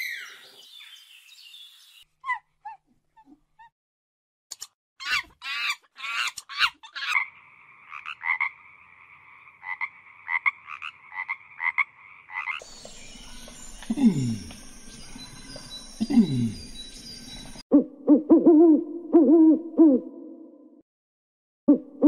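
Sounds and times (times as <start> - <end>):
frog croaking: 7.0 - 12.6.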